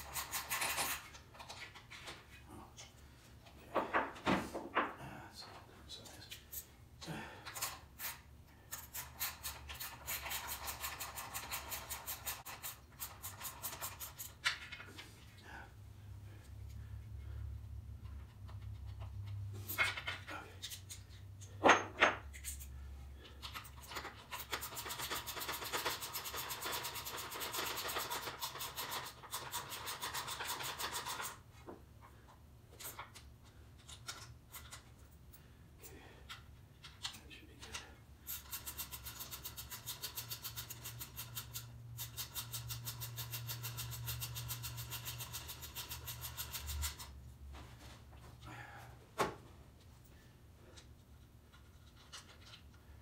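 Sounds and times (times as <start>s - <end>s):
ratchet wrench clicking: 38.3s - 47.1s.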